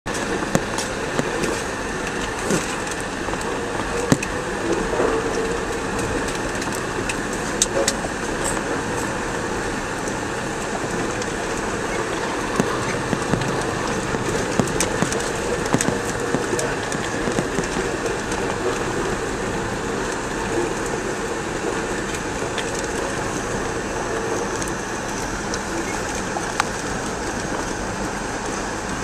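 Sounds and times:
sharp clicks and knocks: 0.1 - 5.1, 10.9 - 19.2
vehicle rumble with rattling: 0.1 - 29.0.

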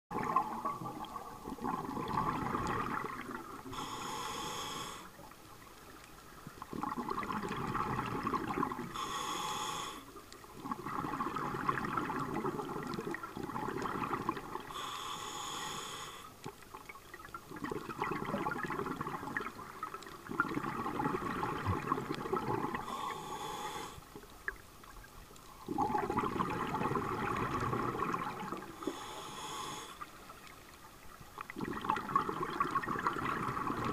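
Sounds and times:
exhaled bubbles rushing: 0.1 - 3.8, 6.6 - 8.9, 10.6 - 14.7, 17.2 - 22.9, 25.6 - 28.8, 31.4 - 33.9
regulator hiss on inhale: 3.6 - 5.4, 8.8 - 10.2, 14.7 - 16.4, 22.8 - 24.3, 28.6 - 30.3.

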